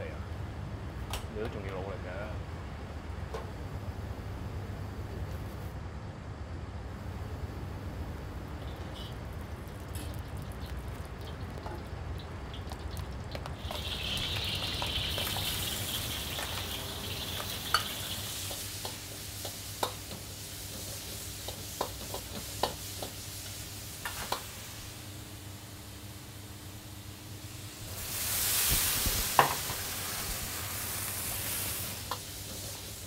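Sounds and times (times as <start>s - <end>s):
food sizzling in a wok: 8.6s - 33.0s.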